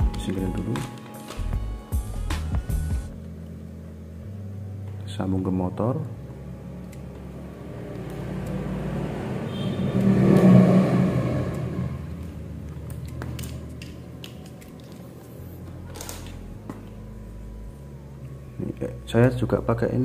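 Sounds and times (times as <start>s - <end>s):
passing vehicle rumble: 6.5s - 12.7s
wires and connectors clicking: 6.8s - 7.3s, 11.5s - 17.0s.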